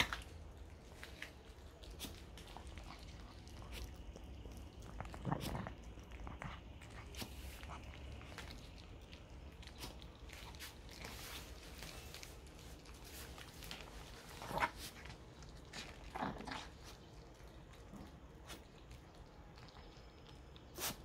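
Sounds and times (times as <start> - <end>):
dog chewing: 0.0 - 21.0
dog growling: 4.8 - 6.8, 15.7 - 17.0.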